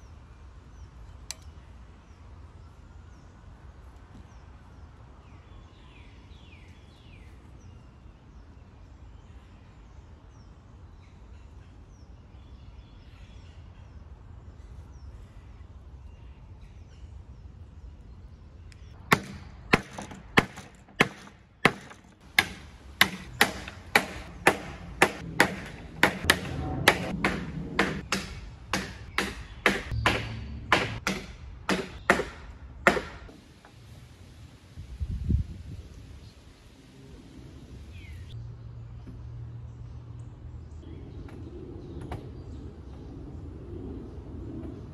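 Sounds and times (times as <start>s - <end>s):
sharp wooden knocks: 19.1s - 33.3s.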